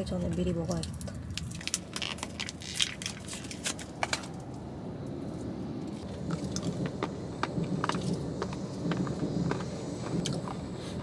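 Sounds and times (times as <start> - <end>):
low car interior rumble: 0.0 - 11.0
plastic candy wrapper crinkling: 0.8 - 4.1.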